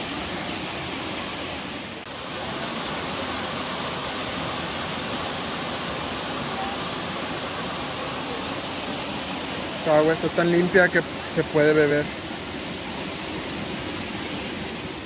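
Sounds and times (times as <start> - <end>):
spring water flowing: 0.0 - 15.0.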